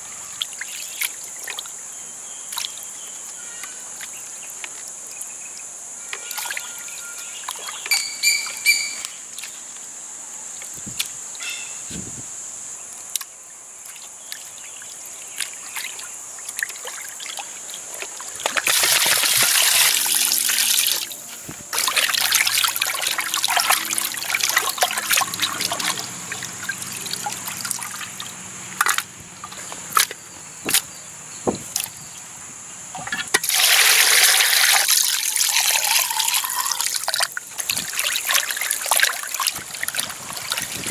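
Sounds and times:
water pouring and splashing: 15.3s - 30.1s, 33.0s - 40.9s
hands rinsing fish in water: 18.0s - 21.1s, 21.7s - 29.0s, 33.4s - 40.9s.

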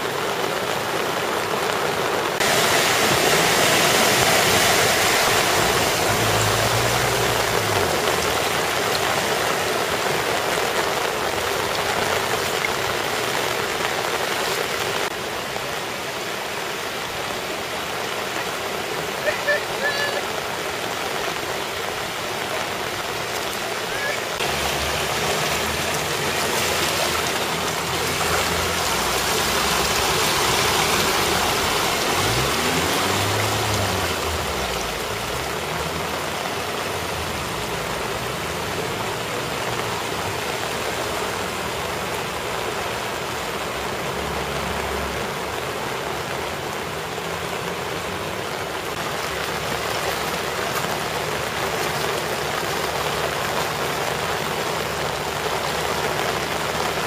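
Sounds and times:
car tyres sloshing through water: 0.0s - 57.0s
flowing floodwater: 0.0s - 57.0s
heavy rain: 0.0s - 57.0s
car engine passing: 2.4s - 12.4s, 24.4s - 45.9s.

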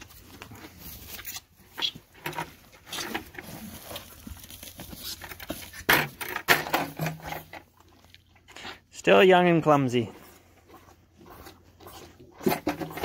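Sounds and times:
rustling and shuffling: 0.0s - 8.8s.

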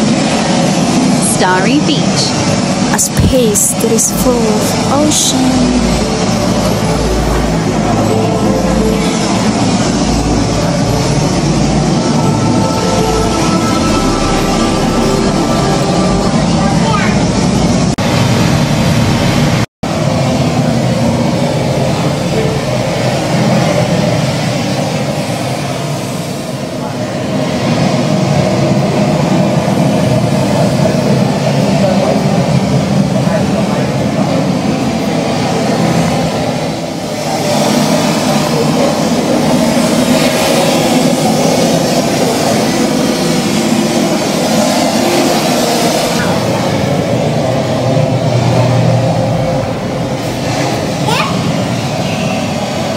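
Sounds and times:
ocean surf rushing: 0.0s - 52.9s
rushing water over speakers: 17.6s - 22.6s.

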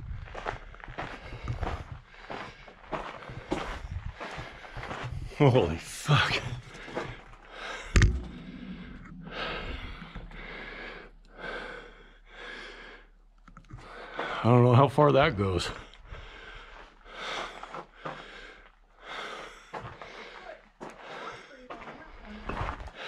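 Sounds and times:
footsteps walking: 0.3s - 11.7s
person breathing heavily: 0.3s - 14.6s, 15.7s - 23.0s
sharp knock: 7.9s - 11.0s.

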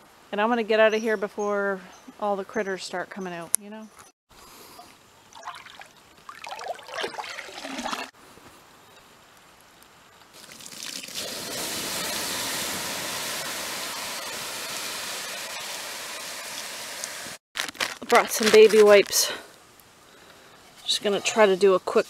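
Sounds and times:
water splashing: 5.3s - 8.1s, 10.4s - 16.2s
water sizzling on hot coals: 9.2s - 22.0s.

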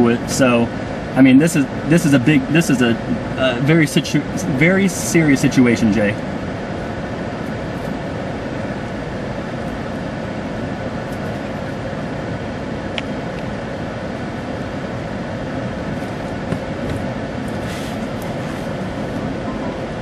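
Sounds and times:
faint hum: 0.0s - 20.0s
steady rushing noise: 0.0s - 20.0s.

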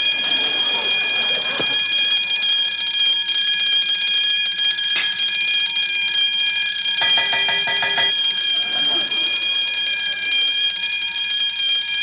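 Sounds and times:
electric alarm bell ringing: 0.0s - 12.0s.

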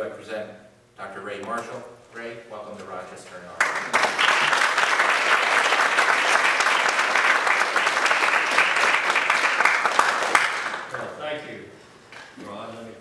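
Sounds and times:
audience applauding: 3.6s - 11.1s.

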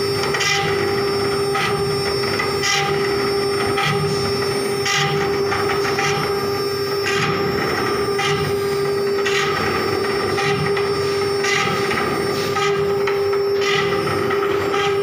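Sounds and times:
router spindle whine: 0.0s - 15.0s
bit grinding on glass: 11.4s - 15.0s.

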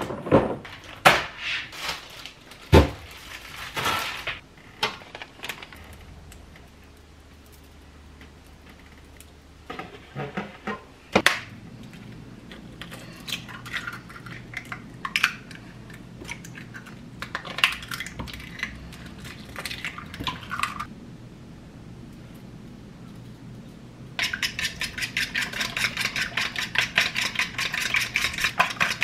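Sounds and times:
eggs cracking against a bowl: 11.3s - 20.9s, 24.2s - 29.0s.

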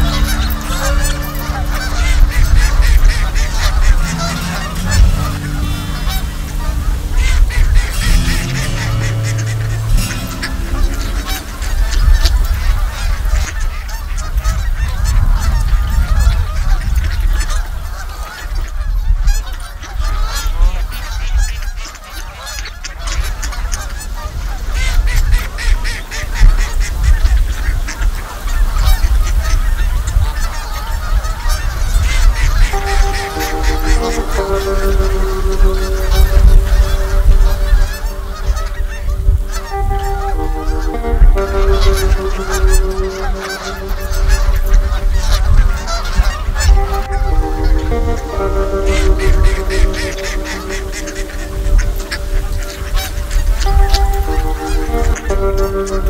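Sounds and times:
geese honking: 0.0s - 56.0s
wind rumbling on microphone: 11.2s - 21.8s, 35.2s - 40.2s.

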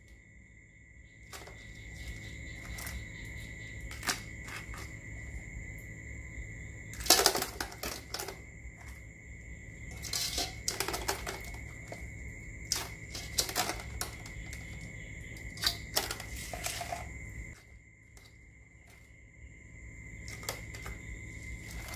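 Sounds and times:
utensils clattering against dishes: 9.9s - 12.0s.

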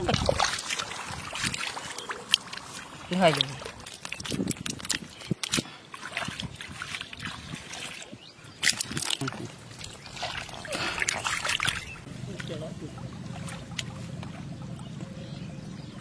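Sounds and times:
hands splashing in muddy water: 0.0s - 12.6s
fish wriggling and splashing: 0.0s - 15.0s.

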